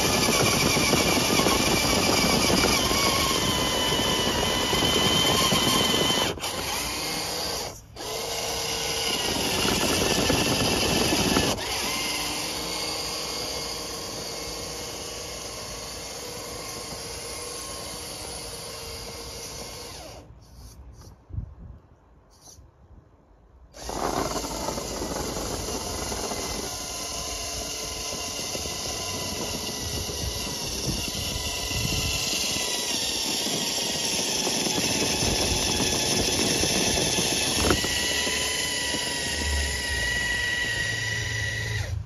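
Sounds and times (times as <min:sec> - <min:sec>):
electric motors whining: 0:00.0 - 0:20.7, 0:23.8 - 0:42.0
higher-pitched whine: 0:37.5 - 0:42.0.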